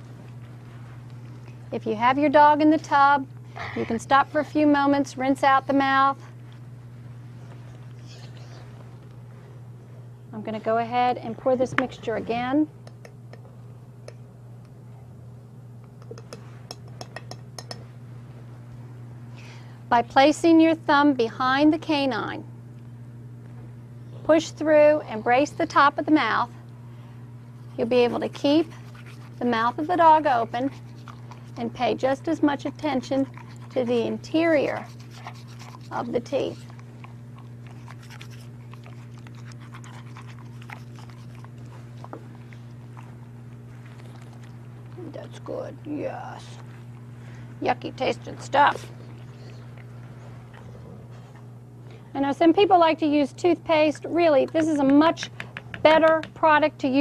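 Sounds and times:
low electrical hum: 0.0 - 57.0
dishes clinking: 16.1 - 17.9
dog panting: 27.7 - 44.6
toothbrush scrubbing teeth: 27.7 - 45.3.

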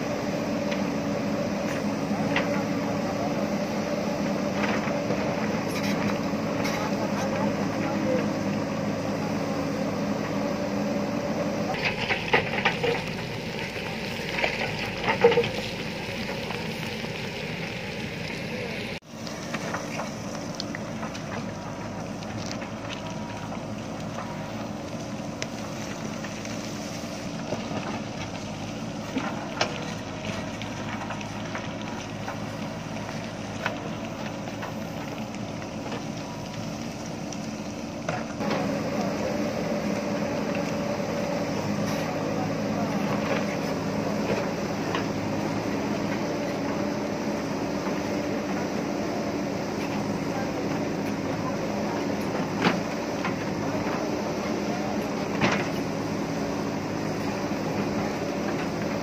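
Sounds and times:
diesel engine under load: 0.0 - 59.0
clanks and rattles of stones: 4.5 - 8.4, 11.7 - 17.9, 19.3 - 26.7, 27.3 - 38.8, 54.9 - 56.0.

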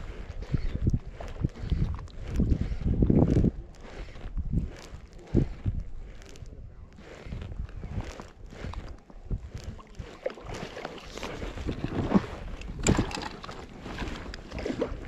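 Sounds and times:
water splashing and sloshing: 0.0 - 15.0.

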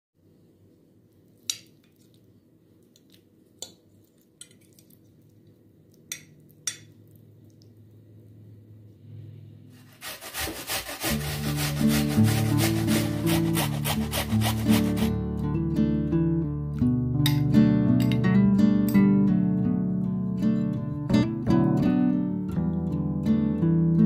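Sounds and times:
onion rasping on metal grater: 9.7 - 15.1
background music: 11.0 - 19.8.

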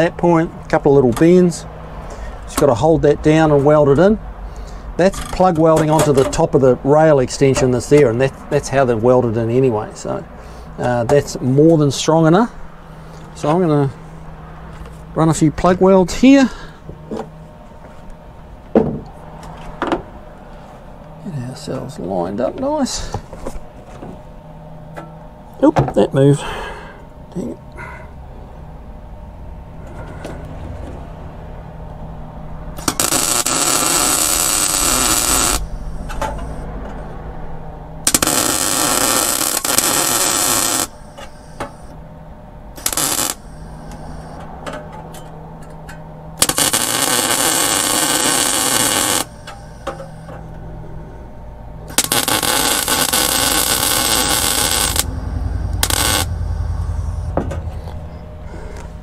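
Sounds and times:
low hum: 11.3 - 59.0
welding arc crackle: 32.8 - 36.1, 38.0 - 41.9, 42.8 - 44.4, 46.4 - 50.3, 51.9 - 55.1, 55.7 - 57.2.

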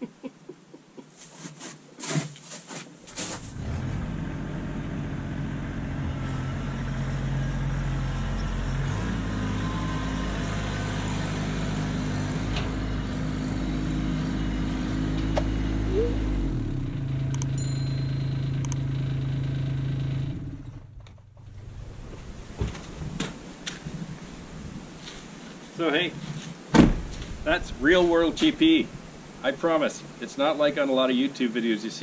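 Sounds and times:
tractor diesel engine running: 3.5 - 23.2, 27.0 - 29.8.

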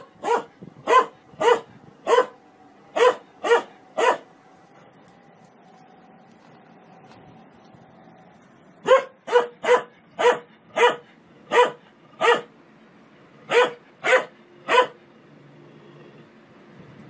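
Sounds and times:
dog barking: 0.0 - 4.3, 8.8 - 12.5, 13.5 - 15.0.

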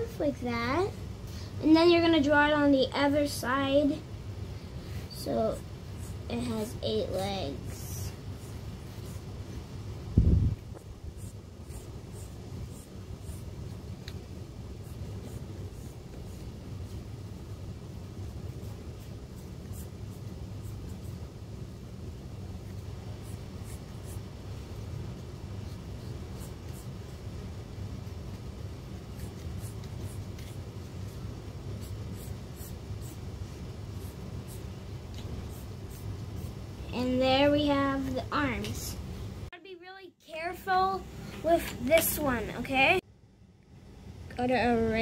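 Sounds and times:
steady low rumble: 0.0 - 39.5
steady low hum: 0.0 - 45.0
pencil scratching on paper: 8.0 - 9.3, 11.1 - 13.5, 14.8 - 17.0, 18.5 - 21.2, 23.2 - 24.3, 25.6 - 27.1, 29.1 - 33.3, 33.9 - 34.7, 35.4 - 36.6.

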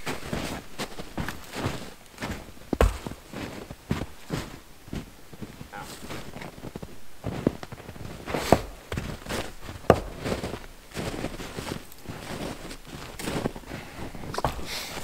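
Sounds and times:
footsteps crunching in snow: 0.0 - 15.0
sharp knocks: 2.8 - 3.2.

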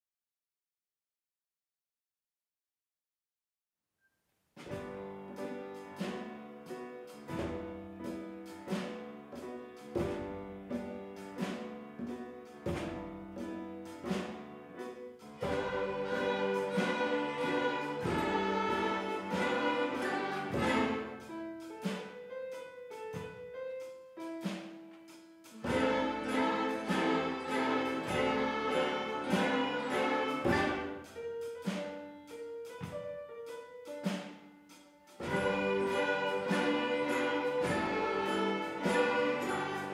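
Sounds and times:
orchestra playing swing music: 4.8 - 22.2, 25.4 - 32.4, 35.1 - 39.9.

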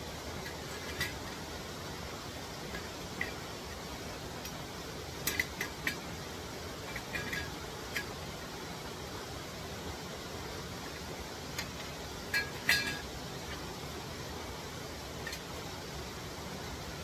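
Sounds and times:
falling water rushing: 0.0 - 17.0.

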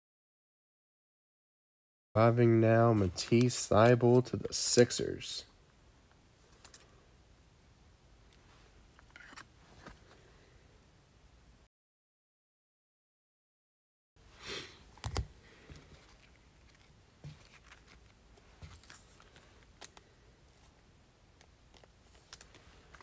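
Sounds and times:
cards rustling: 2.9 - 5.0, 6.4 - 6.9, 14.9 - 20.8, 21.4 - 23.0.

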